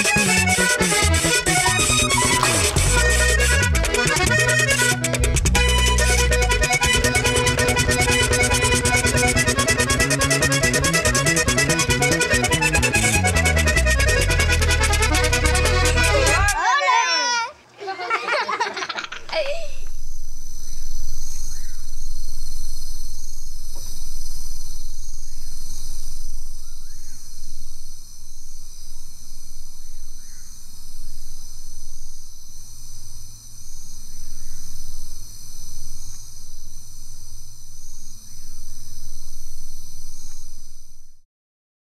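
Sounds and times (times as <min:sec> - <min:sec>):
insects trilling: 0:16.8 - 0:41.2
low rumble: 0:19.8 - 0:40.0.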